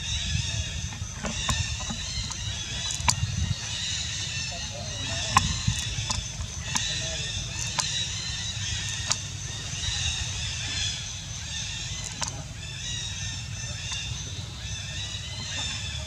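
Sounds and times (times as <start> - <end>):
high-pitched chirping chorus: 0.0 - 16.0
sharp clicks: 1.2 - 3.5, 5.2 - 9.3, 11.9 - 12.4.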